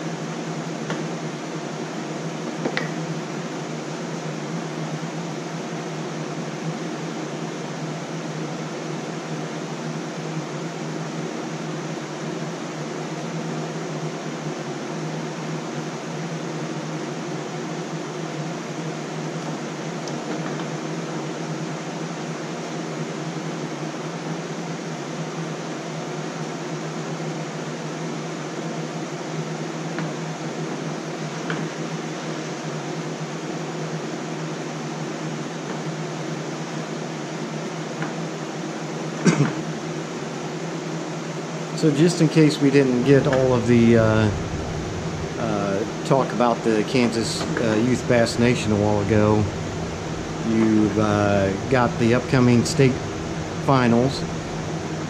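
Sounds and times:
cooling fans whirring: 0:00.0 - 0:55.0.

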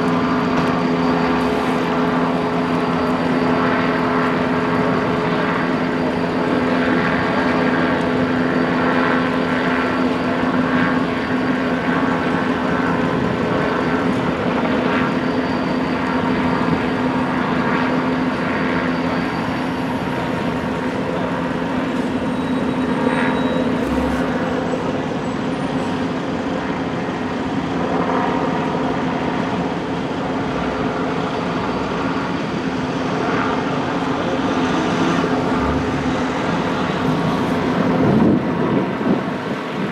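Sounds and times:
vehicle engines idling: 0:19.9 - 0:27.8, 0:28.8 - 0:38.8.

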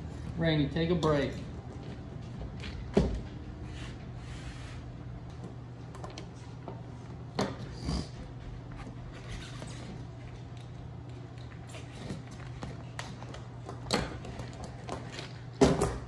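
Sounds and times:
low steady hum: 0:00.0 - 0:16.0
chain knocking on wooden bench: 0:13.7 - 0:16.0.

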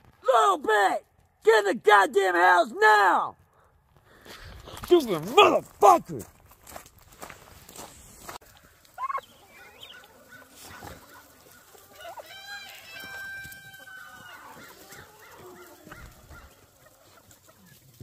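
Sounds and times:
chickens calling: 0:07.6 - 0:18.0.

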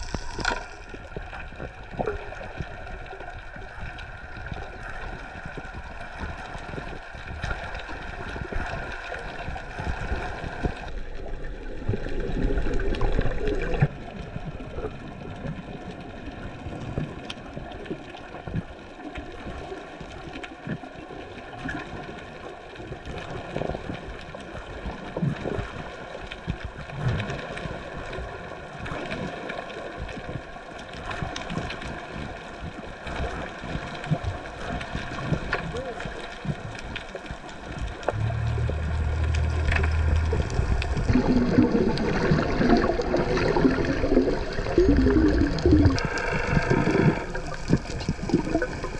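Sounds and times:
moving water underwater: 0:00.0 - 0:48.9
faint clicks: 0:34.6 - 0:41.7
steady multi-tone hum: 0:38.1 - 0:42.9.

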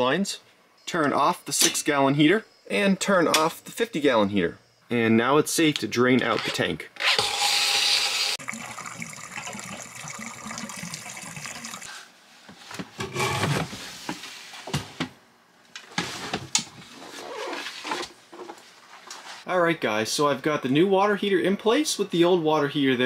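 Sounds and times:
water rushing into a hose: 0:08.4 - 0:11.9.

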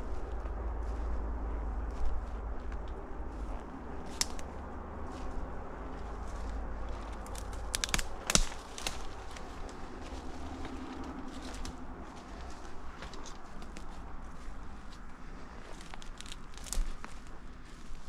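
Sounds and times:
footsteps through dry leaves: 0:00.0 - 0:18.0
low rumble: 0:00.0 - 0:18.0
twigs snapping: 0:04.0 - 0:18.0.

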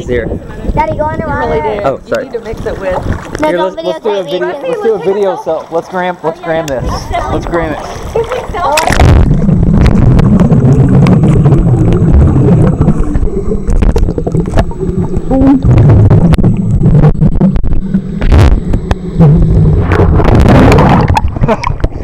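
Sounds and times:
underwater churning rumble: 0:00.0 - 0:04.2, 0:06.8 - 0:22.0
underwater bubbling: 0:00.0 - 0:22.0
underwater clicks: 0:08.2 - 0:22.0.

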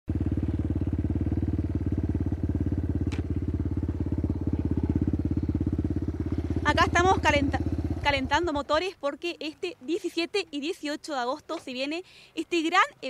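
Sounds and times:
dirt bike engine idling: 0:00.1 - 0:09.0.

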